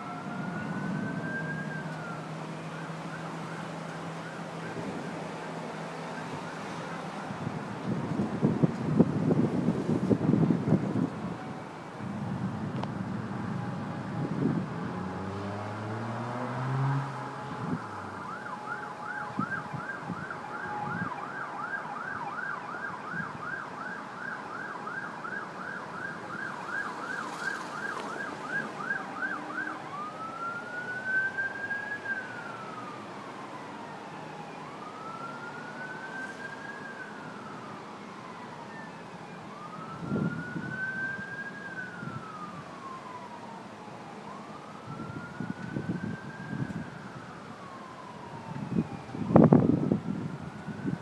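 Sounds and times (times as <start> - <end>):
emergency vehicle siren: 0.0 - 51.0
wind and rain hiss: 0.0 - 51.0
vehicle engine revving: 14.6 - 18.1.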